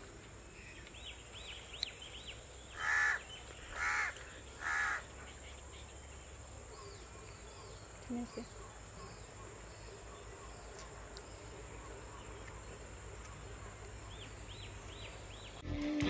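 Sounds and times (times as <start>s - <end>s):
crow cawing: 2.8s - 5.1s.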